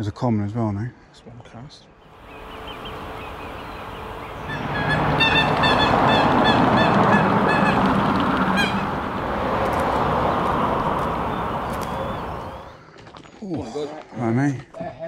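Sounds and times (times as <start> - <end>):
loud steady rushing noise: 2.1 - 12.8
geese honking: 2.2 - 12.8.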